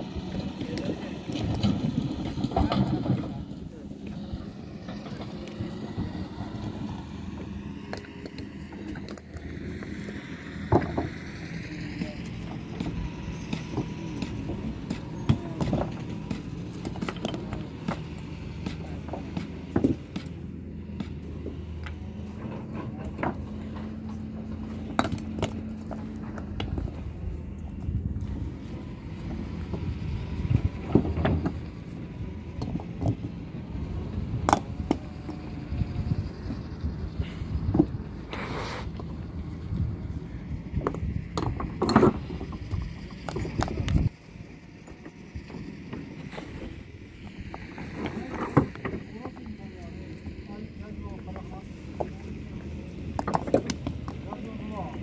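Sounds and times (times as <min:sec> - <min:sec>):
engine hum: 0:00.0 - 0:55.0
stones clacking together: 0:12.2 - 0:27.0, 0:51.1 - 0:54.7.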